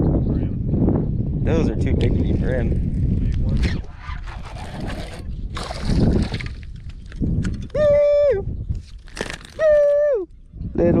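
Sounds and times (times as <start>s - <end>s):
water splashing: 4.2s - 6.9s.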